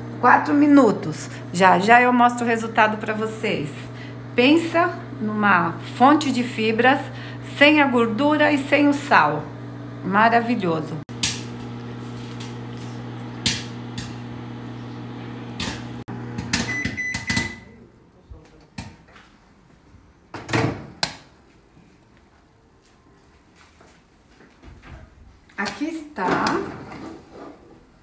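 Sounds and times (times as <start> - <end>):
microwave oven humming: 0.0 - 17.8
popcorn popping: 11.1 - 14.4
microwave long beep: 16.6 - 17.8.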